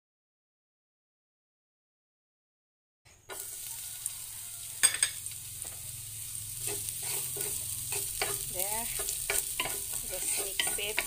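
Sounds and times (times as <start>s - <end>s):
garlic sizzling in oil: 3.2s - 11.0s
spatula tapping and scraping pan: 3.3s - 3.7s, 6.6s - 11.0s.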